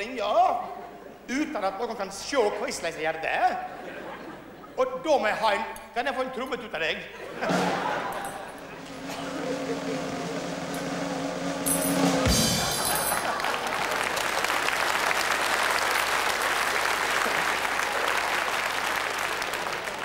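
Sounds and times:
stage band music: 6.2s - 14.9s
bass drum and cymbal hit: 8.9s - 13.1s
audience applauding: 12.2s - 20.0s.

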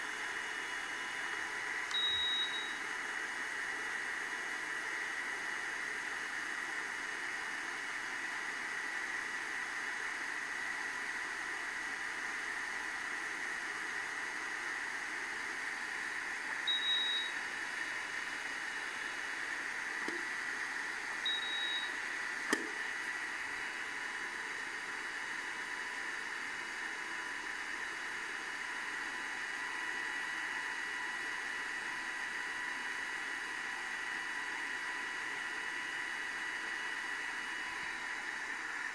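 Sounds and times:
faint high whine: 0.0s - 3.1s, 16.1s - 20.4s, 21.0s - 23.1s
sharp click: 22.5s - 22.8s.

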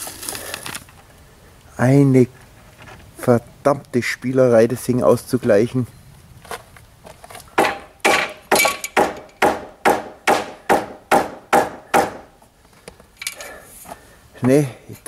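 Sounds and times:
hammer striking wooden formwork: 7.6s - 12.4s.

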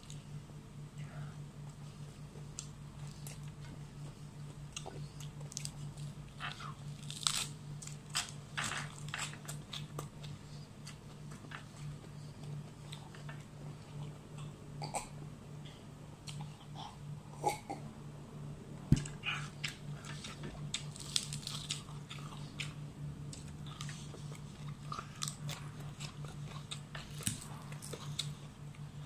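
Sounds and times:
steady low hum: 0.0s - 29.0s
person crunching lettuce: 4.6s - 10.2s, 19.2s - 28.4s.

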